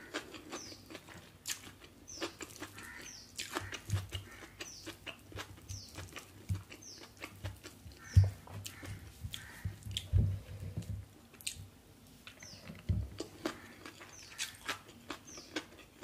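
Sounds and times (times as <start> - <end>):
soft thumps: 8.1 - 11.1.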